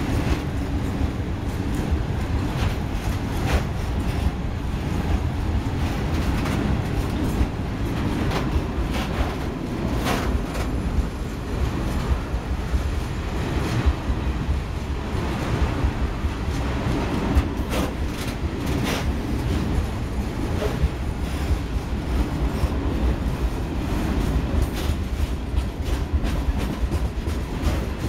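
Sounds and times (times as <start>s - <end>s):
train wheels rumbling on rail: 0.0s - 28.0s.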